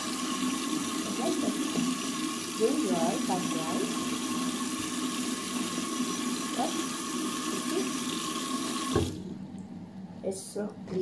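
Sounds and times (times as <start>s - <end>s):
tap water splashing into basin: 0.8s - 6.8s, 7.4s - 9.7s.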